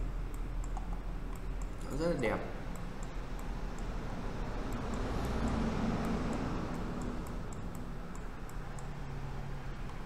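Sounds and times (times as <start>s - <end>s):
room hum: 0.0s - 10.0s
computer mouse clicking: 0.3s - 1.8s, 2.7s - 3.9s, 4.6s - 9.0s, 9.8s - 10.0s.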